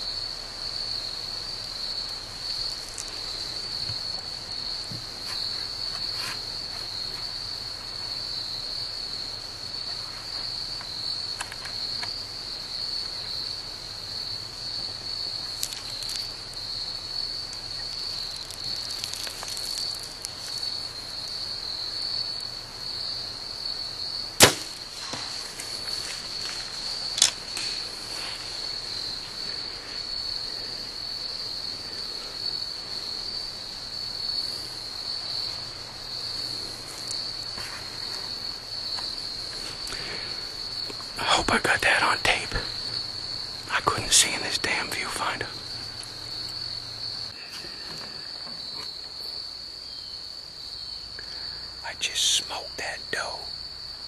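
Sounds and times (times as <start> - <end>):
high-pitched insect trill: 0.0 - 54.0
bow string snapping: 24.4 - 25.7
soft sharp crack: 24.4 - 26.1.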